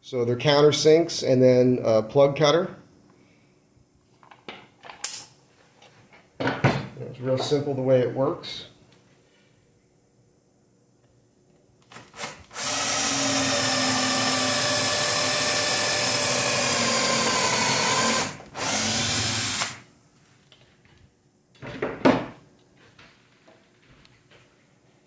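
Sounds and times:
cordless drill spinning into wood: 12.1s - 19.8s.

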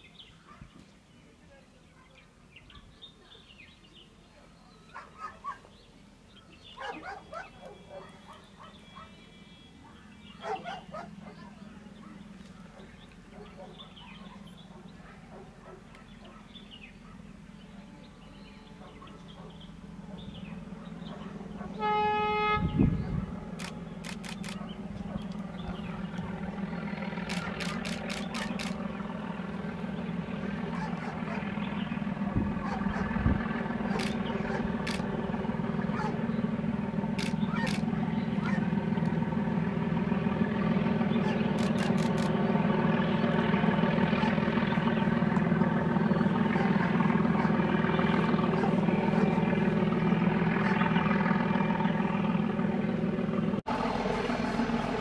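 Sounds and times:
distant dogs barking: 0.3s - 0.9s, 1.8s - 3.4s, 4.8s - 55.0s
diesel train drone: 3.4s - 55.0s
train horn blast: 21.6s - 23.6s
thin bird chirps: 23.0s - 28.8s
sharp clicks: 23.6s - 25.4s, 27.2s - 28.8s, 33.9s - 35.1s, 37.2s - 38.0s, 41.5s - 42.4s.

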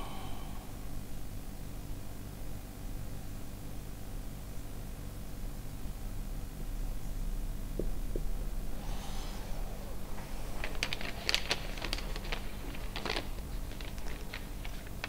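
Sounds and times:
paper rustling and crinkling: 10.1s - 15.0s.

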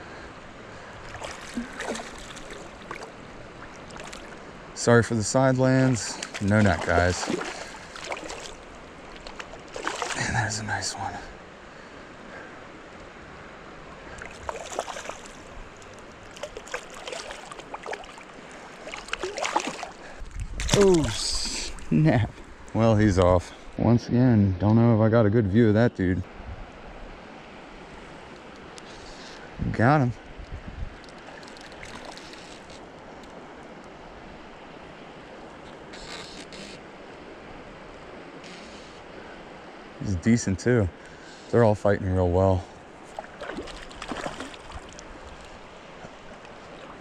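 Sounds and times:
creek water rushing: 0.0s - 23.9s, 30.9s - 47.0s
fish splashing at surface: 1.1s - 3.1s, 6.2s - 10.3s, 14.2s - 15.5s, 16.3s - 21.2s, 43.1s - 45.0s
wind on microphone: 29.6s - 31.0s.

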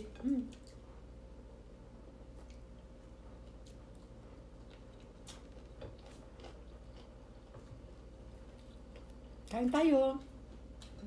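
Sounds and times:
people chewing food: 0.0s - 1.4s, 2.0s - 9.7s
steady low hum: 0.0s - 11.0s.

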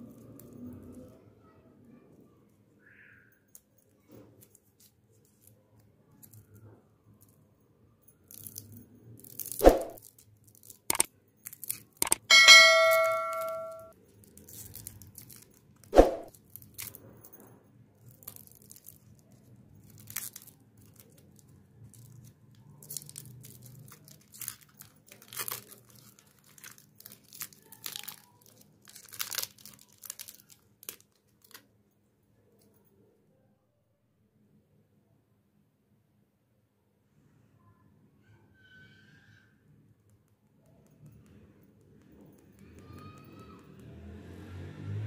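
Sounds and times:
chime ringing: 12.3s - 13.9s
foil wrapper crinkling: 14.2s - 17.0s, 18.1s - 31.6s.

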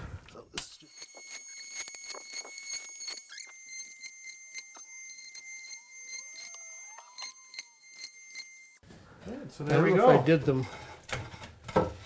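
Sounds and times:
oscillating multi-tool whine: 0.6s - 8.8s.

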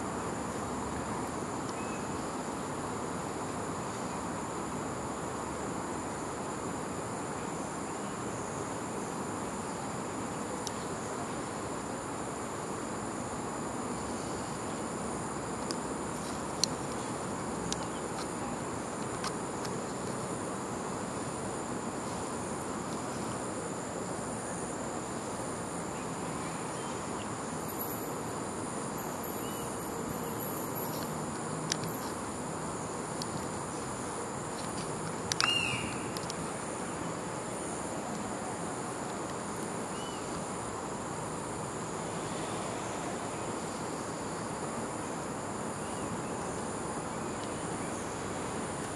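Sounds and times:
insects shrill droning: 0.0s - 48.9s
faint clicks: 30.8s - 32.2s, 34.5s - 36.4s.

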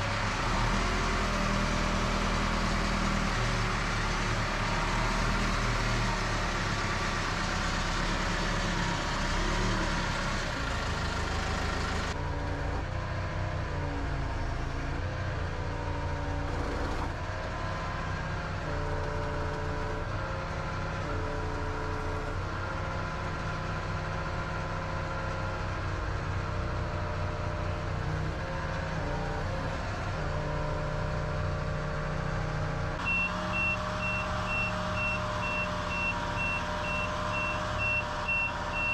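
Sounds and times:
diesel engine under load: 0.0s - 38.9s
rapid electronic alarm beeping: 33.1s - 38.9s.

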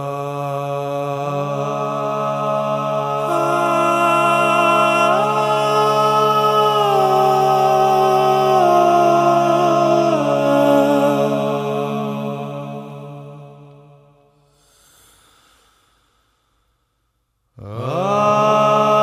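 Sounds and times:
a cappella harmony singing: 0.0s - 14.2s, 17.6s - 19.0s.

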